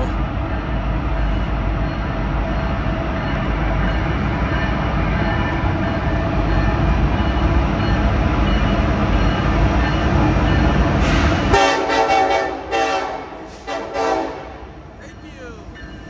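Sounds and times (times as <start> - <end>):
diesel locomotive rumbling: 0.0 - 16.0
train air horn blasts: 11.5 - 14.7.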